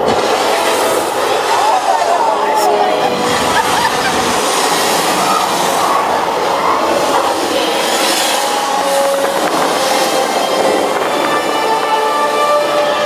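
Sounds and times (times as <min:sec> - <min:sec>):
crashing water: 0:00.0 - 0:13.0
rush of wind: 0:00.0 - 0:13.0.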